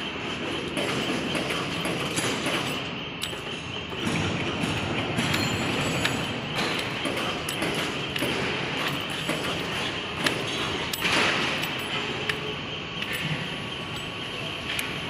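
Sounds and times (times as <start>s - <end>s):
pallet truck running and rolling: 0.0s - 15.0s.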